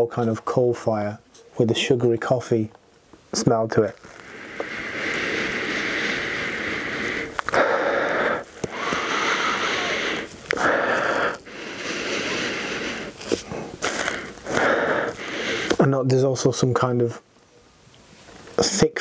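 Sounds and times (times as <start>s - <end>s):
man sniffing: 4.1s - 15.8s.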